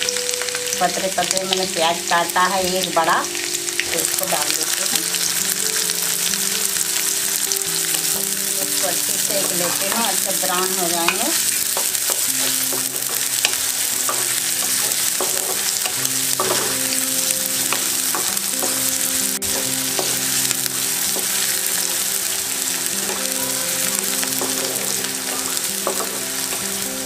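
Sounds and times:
onions sizzling in hot oil: 0.0 - 27.0
soft background music: 0.0 - 27.0
wooden spatula scraping pan: 8.8 - 17.0.

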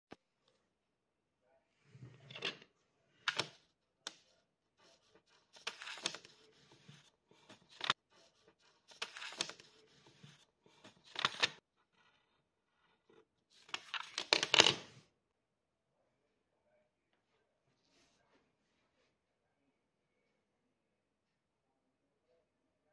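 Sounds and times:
paper rustling and crinkling: 4.8 - 11.6.

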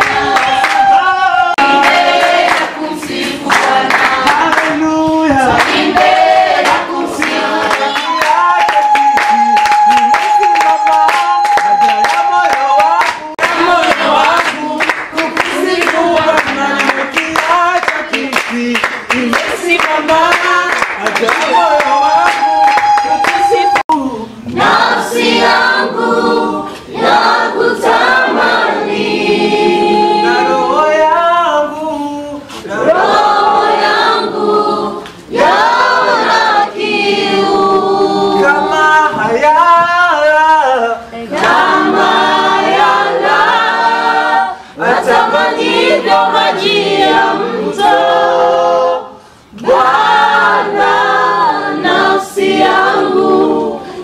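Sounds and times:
congregation singing unaccompanied: 0.0 - 54.0.

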